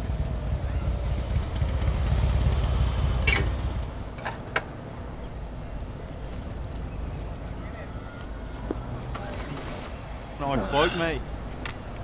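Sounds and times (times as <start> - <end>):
motorcycle engine running: 0.0 - 4.0.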